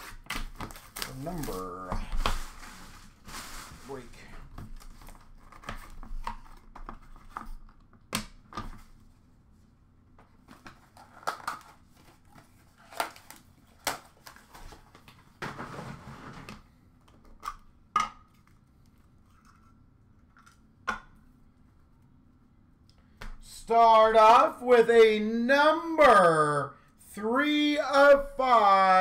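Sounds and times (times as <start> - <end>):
card rustle: 0.0 - 7.8
cards and box clicking and tapping: 4.6 - 8.9.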